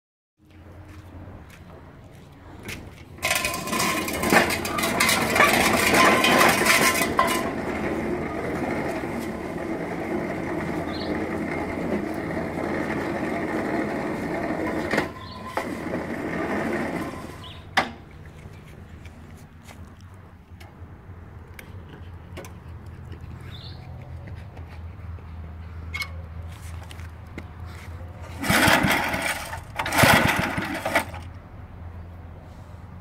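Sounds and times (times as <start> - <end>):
mower engine running: 3.1 - 19.8, 27.7 - 31.4
loud rattling clatter: 3.2 - 17.6, 28.2 - 31.3.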